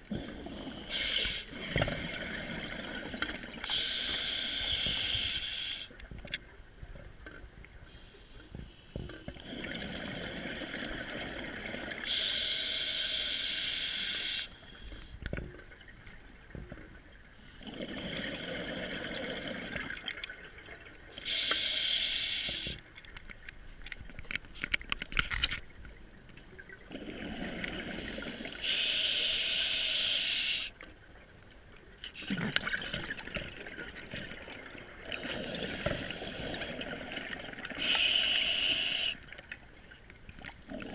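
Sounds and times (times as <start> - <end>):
crackling bubbles: 0.0 - 31.3, 32.0 - 40.9
diver breathing through regulator: 0.2 - 2.2, 3.7 - 5.9, 12.0 - 15.1, 21.2 - 22.8, 27.4 - 30.8, 37.8 - 39.2.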